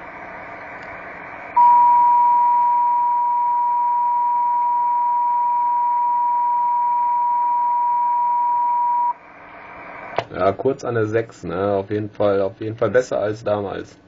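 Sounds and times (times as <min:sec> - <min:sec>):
steady test tone over radio: 0:00.0 - 0:11.5
radio receiver hiss: 0:09.2 - 0:14.0.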